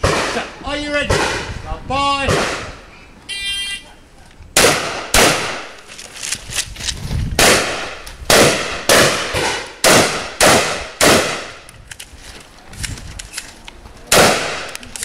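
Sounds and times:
shotgun shots: 0.0s - 1.6s, 2.2s - 2.8s, 4.6s - 5.8s, 7.4s - 11.6s, 14.1s - 14.8s.

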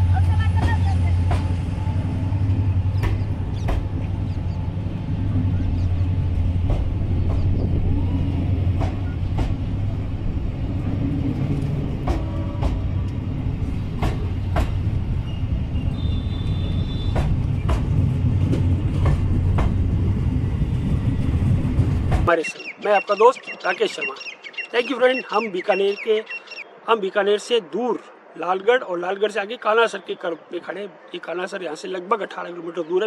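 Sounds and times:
locomotive engine drone: 0.0s - 22.3s
train clanks and clicks: 0.0s - 22.7s.

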